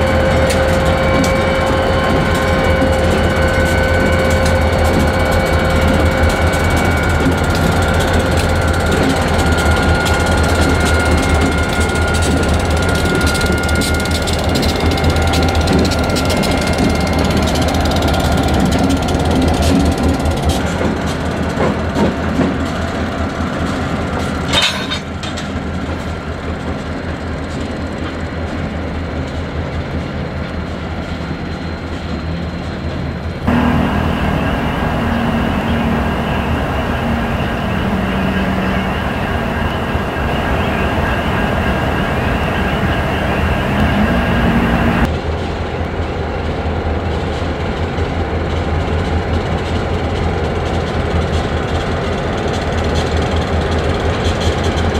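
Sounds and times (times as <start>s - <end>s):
high wheel squeal: 0.0s - 20.0s, 33.5s - 45.1s
diesel locomotive engines droning: 0.0s - 54.9s.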